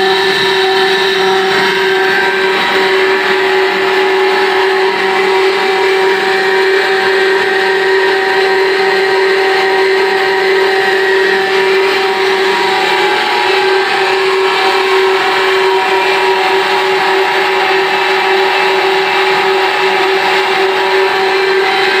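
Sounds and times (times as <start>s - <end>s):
turbine generator hum: 0.0s - 22.0s.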